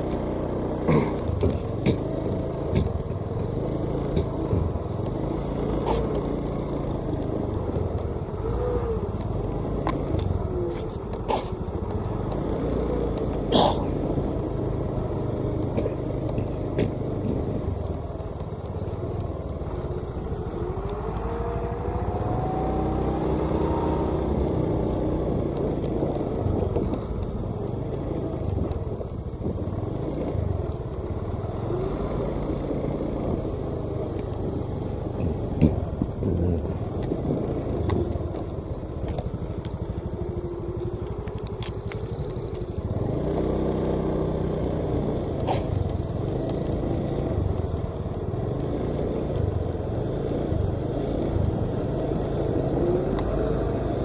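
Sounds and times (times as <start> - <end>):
truck engine running: 0.0 - 53.9
rising whine: 19.6 - 25.6.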